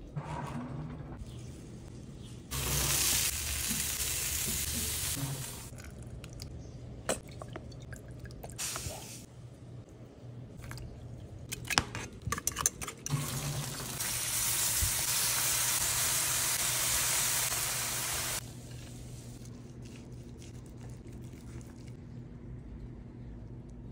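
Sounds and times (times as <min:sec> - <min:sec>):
chicken sizzling on grill: 0:02.5 - 0:05.7, 0:13.1 - 0:18.4.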